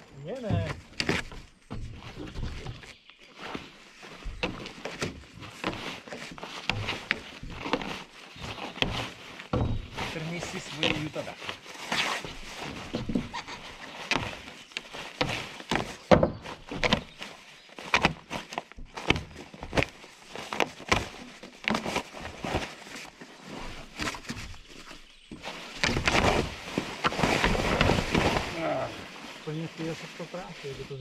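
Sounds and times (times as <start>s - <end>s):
plastic sheet rustling and crackling: 0.0s - 31.0s
knocks on wooden boards: 15.2s - 17.1s.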